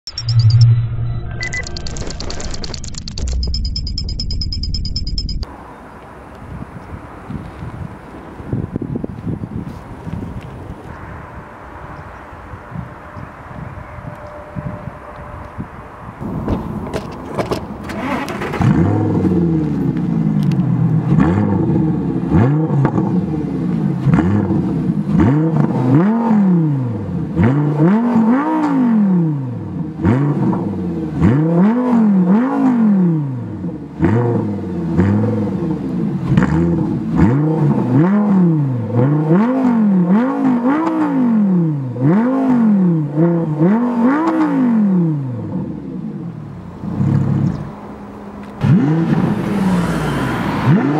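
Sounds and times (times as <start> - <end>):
car engine revving: 17.8 - 50.9.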